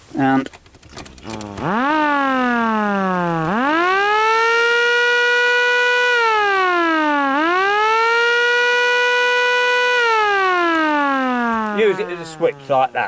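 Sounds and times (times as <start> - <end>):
electronic siren wailing: 1.3 - 13.0.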